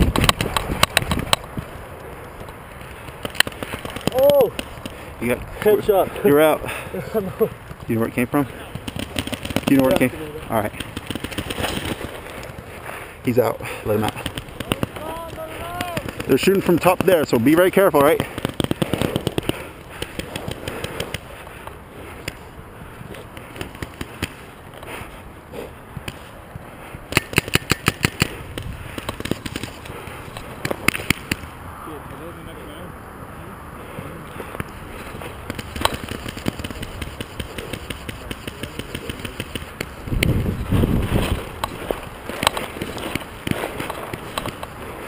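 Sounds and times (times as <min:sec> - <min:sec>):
paintball markers firing: 0:00.0 - 0:01.7, 0:02.4 - 0:06.5, 0:07.6 - 0:12.8, 0:13.6 - 0:22.5, 0:23.2 - 0:24.6, 0:27.1 - 0:31.5, 0:34.6 - 0:40.4, 0:41.1 - 0:45.0
camera rustling in grass: 0:07.1 - 0:25.4, 0:26.0 - 0:31.5, 0:34.4 - 0:45.0.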